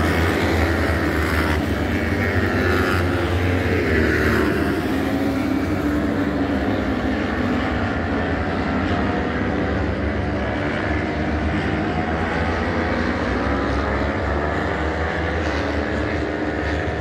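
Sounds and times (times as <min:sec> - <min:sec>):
motorcycles racing at high revs: 0:00.0 - 0:17.0.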